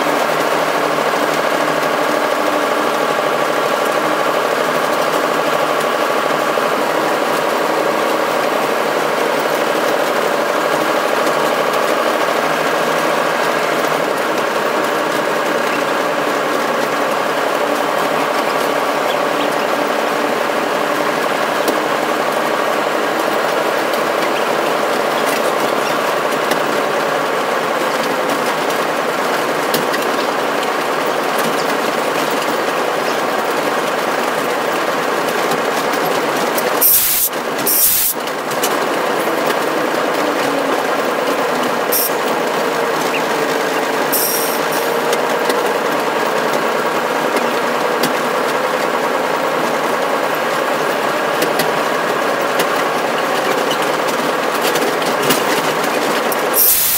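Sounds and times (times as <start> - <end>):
locomotive engine drone with clatter: 0.0 - 56.9
short bursts of high hiss: 36.8 - 38.1, 56.6 - 56.9.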